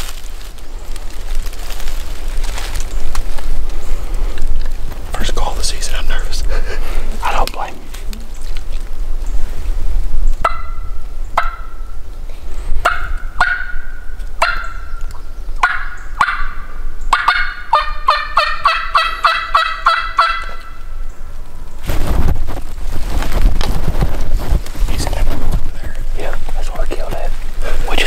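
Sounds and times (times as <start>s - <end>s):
turkey call yelps: 10.4s - 11.8s, 12.8s - 15.0s, 15.6s - 20.9s.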